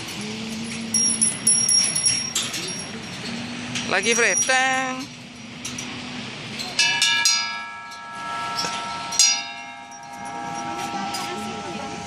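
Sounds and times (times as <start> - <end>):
brass bell ringing: 6.8 - 12.0.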